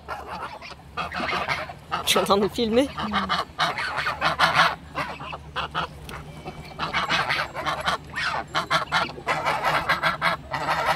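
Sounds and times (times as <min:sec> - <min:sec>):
geese honking: 0:00.0 - 0:10.9.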